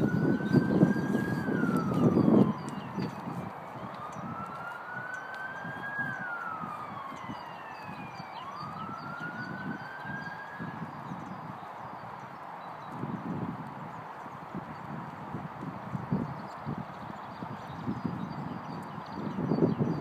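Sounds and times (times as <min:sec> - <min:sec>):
siren wailing: 0:00.0 - 0:11.4.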